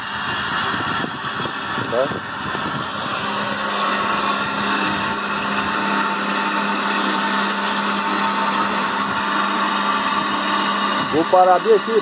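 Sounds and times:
electric motor humming and whining: 0.0 - 12.0.

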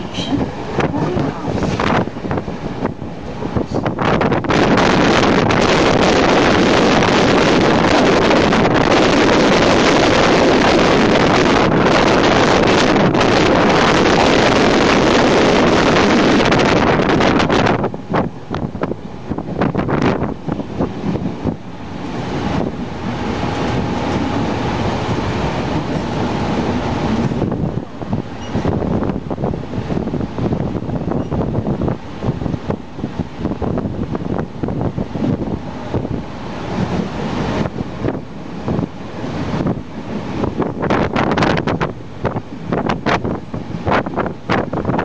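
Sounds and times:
train running noise: 0.0 - 45.0
wind rushing on microphone: 0.0 - 45.0.

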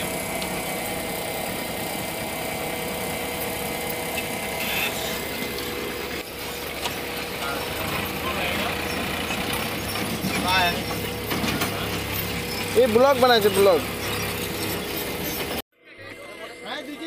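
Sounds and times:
fuel pump humming: 0.0 - 15.6.

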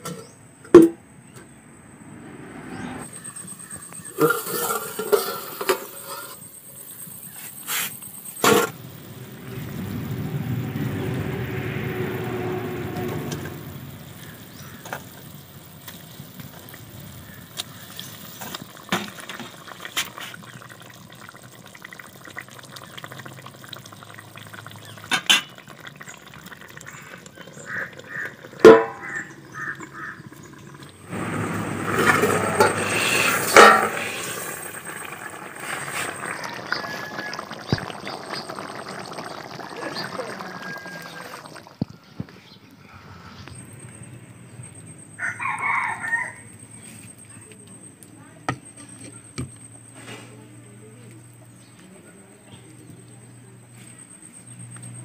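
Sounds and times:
curry bubbling: 4.0 - 42.0
metal lid clanking: 4.2 - 6.4, 28.6 - 29.2, 31.9 - 34.5.

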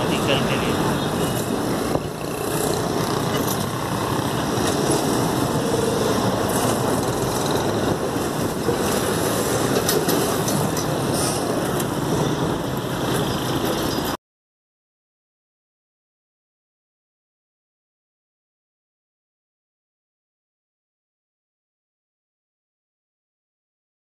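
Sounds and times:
diesel locomotive engine running: 0.0 - 14.2.

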